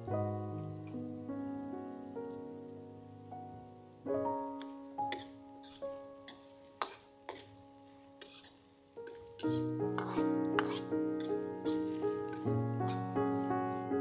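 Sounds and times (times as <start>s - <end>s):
piano music: 0.0s - 14.0s
utensil scraping cooking pan: 5.0s - 14.0s.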